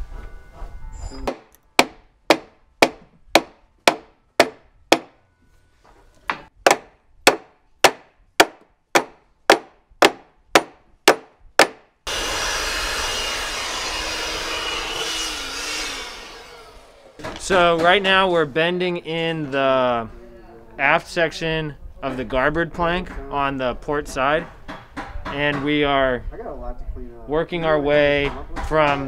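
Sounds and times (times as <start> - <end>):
hammer striking wood: 1.2 - 5.2, 6.3 - 11.9, 17.2 - 18.0, 24.4 - 25.8.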